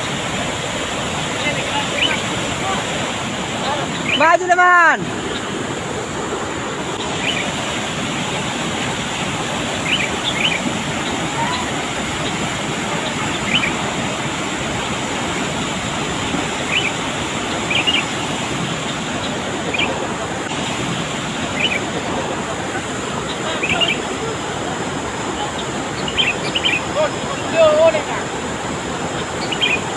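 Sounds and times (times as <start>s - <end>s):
river rushing over rocks: 0.0s - 29.9s
high bird chirps: 3.6s - 4.4s, 7.0s - 7.6s, 9.8s - 12.4s, 13.0s - 13.8s, 16.6s - 17.0s, 17.7s - 18.2s, 25.6s - 26.9s, 29.4s - 29.9s.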